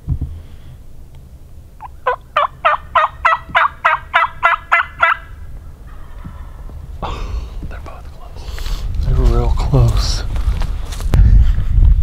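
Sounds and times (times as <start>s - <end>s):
turkey hen yelps: 1.8s - 6.3s.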